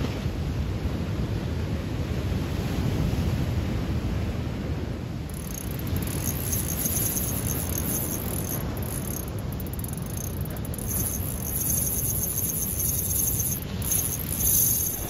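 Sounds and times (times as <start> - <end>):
fast high-pitched ticking: 5.3 - 15.0.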